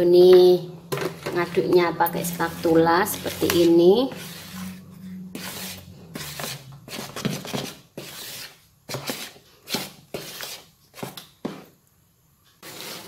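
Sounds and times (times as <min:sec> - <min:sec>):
spatula scraping batter in bowl: 0:01.0 - 0:11.7, 0:12.6 - 0:13.0.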